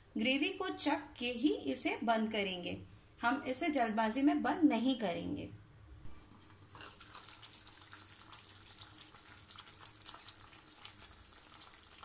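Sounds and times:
gravy bubbling in a pan: 6.2s - 12.0s.

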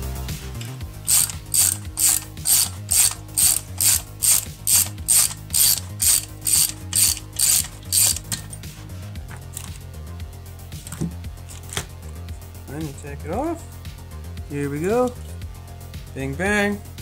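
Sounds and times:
ratchet wrench clicking: 0.5s - 8.6s.

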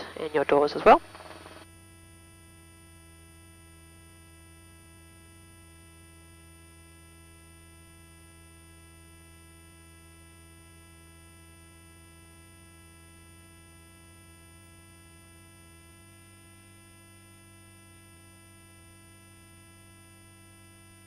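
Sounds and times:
faint steady intercom hum: 0.0s - 1.6s.

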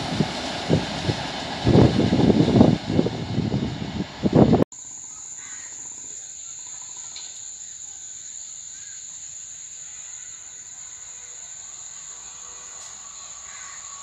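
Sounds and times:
train rumbling past: 0.0s - 4.7s, 9.7s - 14.0s
faint outdoor background: 0.0s - 14.0s
high-pitched insect chorus: 4.7s - 14.0s.

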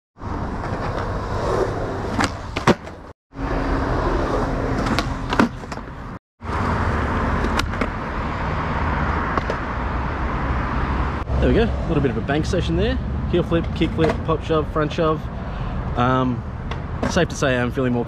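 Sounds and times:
skateboard wheels rolling on concrete: 0.2s - 11.6s
skateboard tail snapping and landing: 2.1s - 3.0s.

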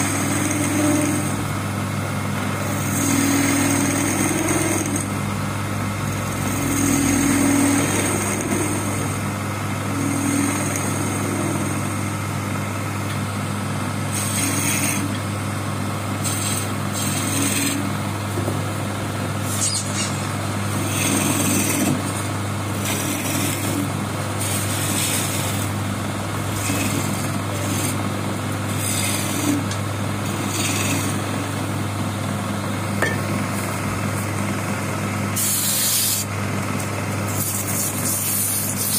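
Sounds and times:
chisel scraping spinning wood: 0.0s - 1.5s, 2.5s - 5.2s, 6.1s - 12.0s, 14.1s - 15.4s, 16.1s - 18.7s, 19.3s - 32.1s, 35.3s - 36.3s, 37.2s - 38.9s
wood lathe humming: 0.0s - 19.6s, 20.3s - 37.7s.

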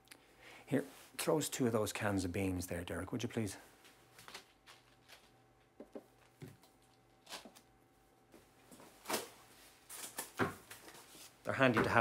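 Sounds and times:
soft knocks and handling noises: 10.3s - 12.0s.

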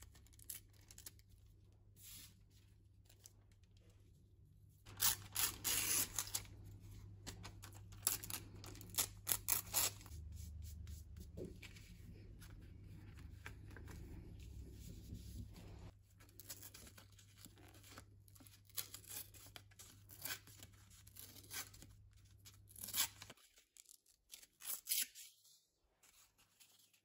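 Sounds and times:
paper tearing: 4.9s - 6.5s.

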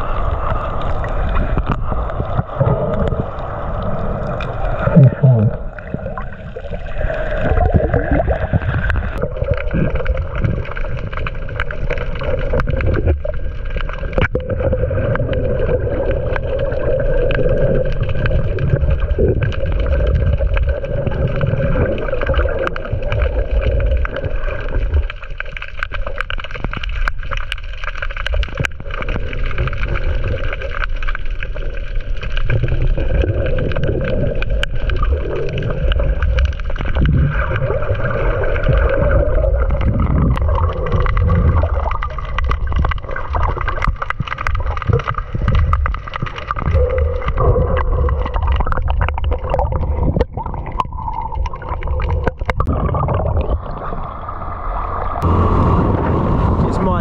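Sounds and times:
wind rumbling: 0.0s - 25.2s, 31.9s - 57.0s
water rumbling: 0.0s - 57.0s
outboard motor running: 55.2s - 57.0s.

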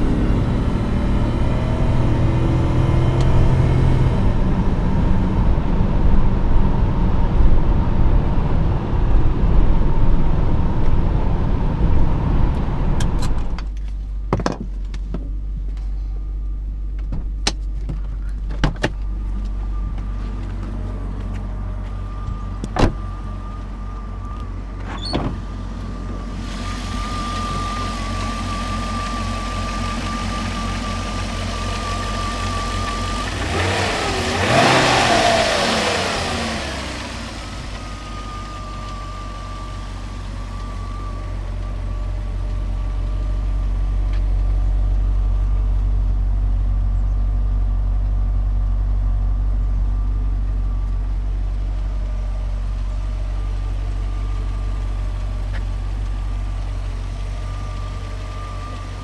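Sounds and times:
engine revving: 0.0s - 6.1s, 26.4s - 38.8s
car engine cruising from inside: 0.0s - 59.0s
car engine idling: 0.0s - 59.0s.

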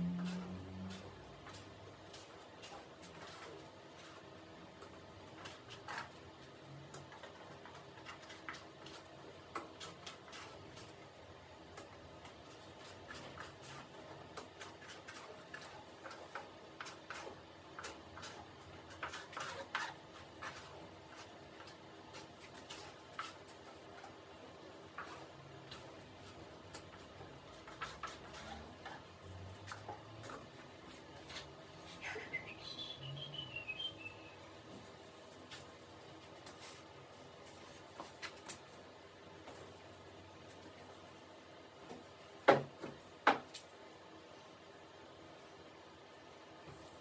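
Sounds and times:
low steady hum: 0.0s - 5.5s
high falling chirps: 32.2s - 34.5s.

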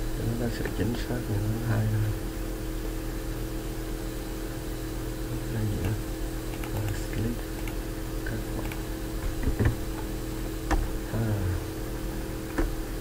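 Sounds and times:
electrical hum: 0.0s - 13.0s
computer mouse clicking: 5.8s - 7.8s, 8.6s - 8.8s.

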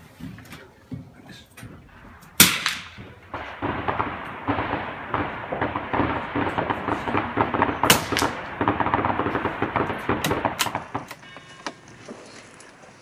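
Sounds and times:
rifle shots: 2.2s - 11.3s.

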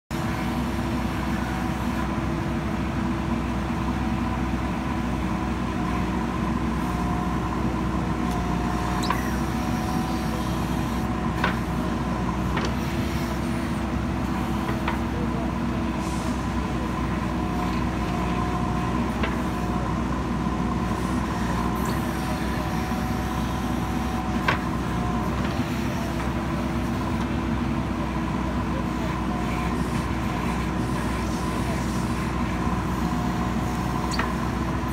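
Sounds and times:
diesel engine under load: 0.1s - 34.9s
hydraulic whine: 8.2s - 15.2s, 20.8s - 27.4s, 29.0s - 34.9s.

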